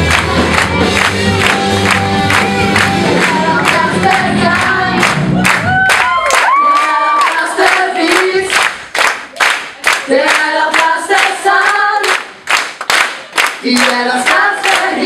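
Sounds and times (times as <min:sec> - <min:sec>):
hands clapping: 0:00.0 - 0:15.0
group singing unaccompanied: 0:02.9 - 0:05.2, 0:06.6 - 0:08.6, 0:10.0 - 0:12.3, 0:13.6 - 0:15.0.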